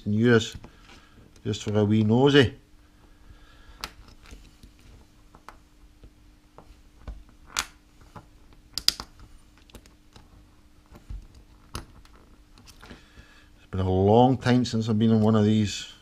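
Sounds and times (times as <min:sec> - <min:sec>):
small plastic and metal clicks: 0:08.8 - 0:10.3.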